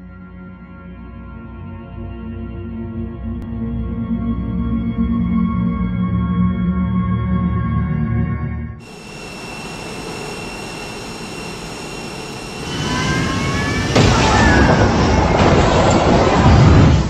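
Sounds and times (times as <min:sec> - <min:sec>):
jet engines whining: 0:08.8 - 0:17.0
loud rushing crash noise: 0:12.6 - 0:17.0.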